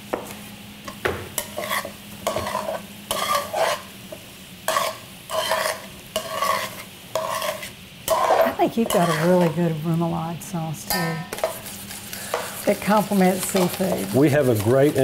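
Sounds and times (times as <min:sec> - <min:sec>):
vegetables sizzling: 0:00.0 - 0:15.0
metal utensil scraping a skillet: 0:01.4 - 0:03.9, 0:04.7 - 0:09.6, 0:10.9 - 0:15.0.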